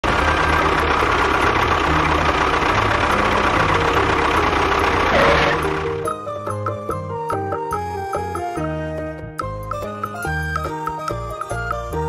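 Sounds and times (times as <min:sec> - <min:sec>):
tractor engine running: 0:00.0 - 0:08.8.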